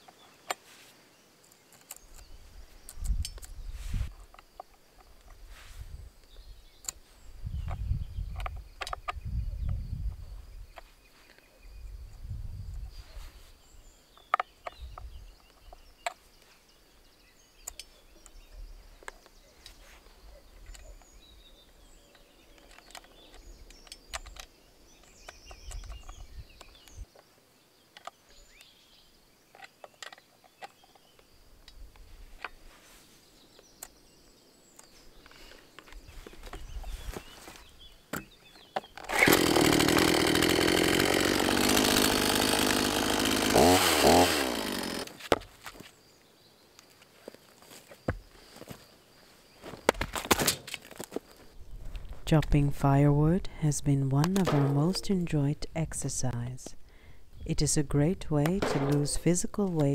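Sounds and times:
wind gusts on microphone: 7.3 - 10.7, 11.8 - 13.3.

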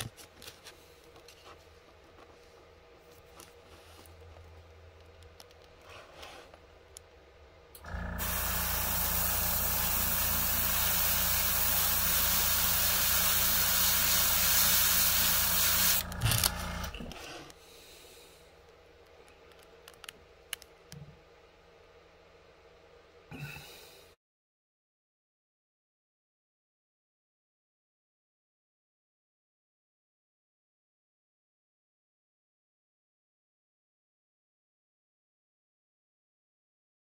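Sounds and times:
compressor humming: 7.6 - 17.5
airbrush air hiss: 8.2 - 16.1.

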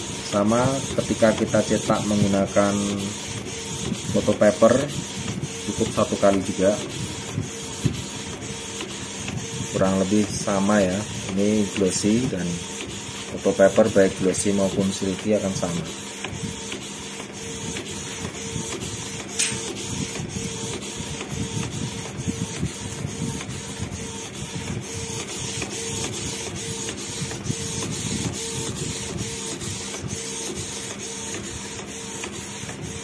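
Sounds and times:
inkjet printer whirring: 0.0 - 33.0
printer clicks: 19.2 - 19.8.

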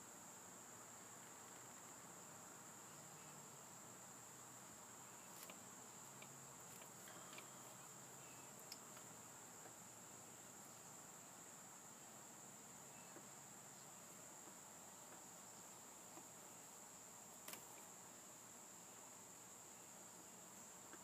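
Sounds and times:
room hiss: 0.0 - 21.0
faint ticks: 6.2 - 7.6, 8.2 - 9.8.

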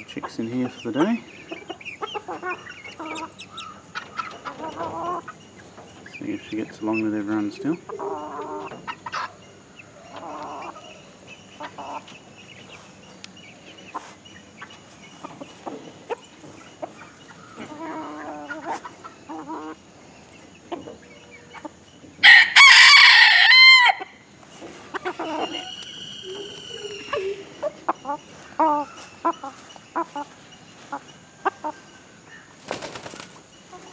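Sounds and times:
chickens clucking: 0.0 - 33.9
rooster crowing: 22.2 - 24.2.

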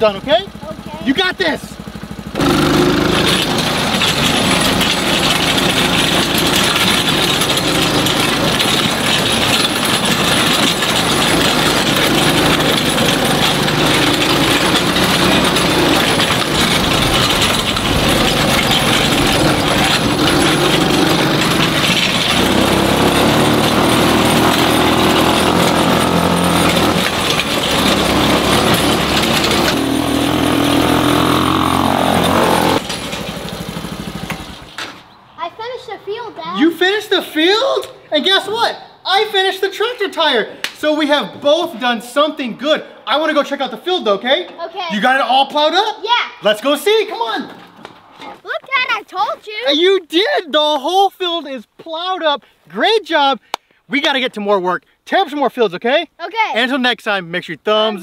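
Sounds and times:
small engine running under load: 0.0 - 35.2.

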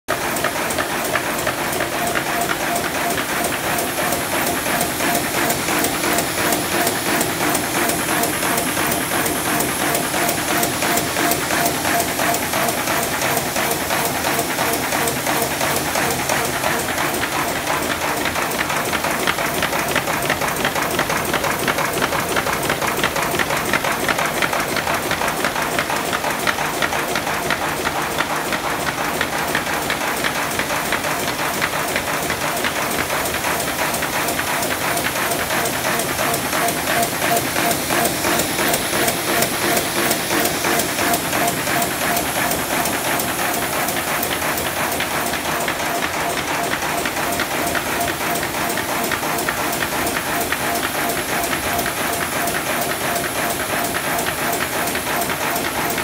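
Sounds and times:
paper folding machine clatter: 0.1 - 56.0.

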